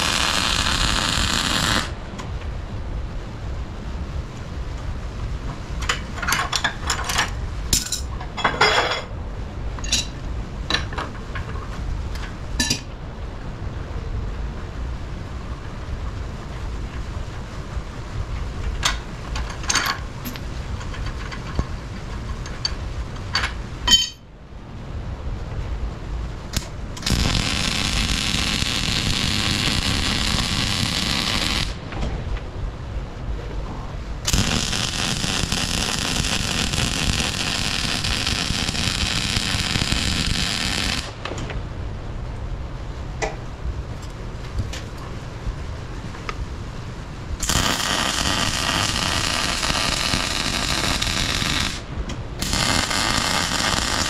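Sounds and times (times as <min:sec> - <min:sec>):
welding arc hissing: 0:00.0 - 0:02.1, 0:26.5 - 0:31.8, 0:34.2 - 0:41.2, 0:47.4 - 0:54.0
low steady rumble: 0:00.0 - 0:54.0.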